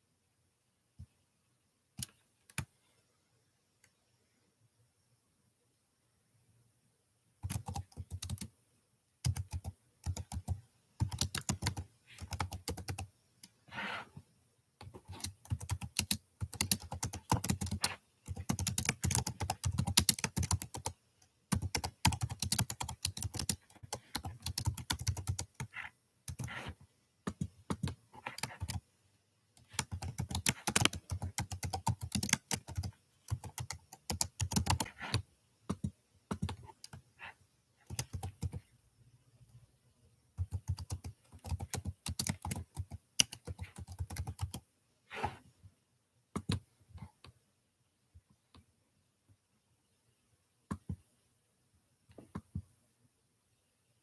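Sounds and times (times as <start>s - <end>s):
typing on a keyboard: 7.4s - 8.5s, 9.2s - 13.1s, 14.8s - 26.5s, 27.3s - 28.8s, 29.6s - 37.0s, 37.9s - 38.6s, 40.4s - 44.6s, 46.4s - 46.6s.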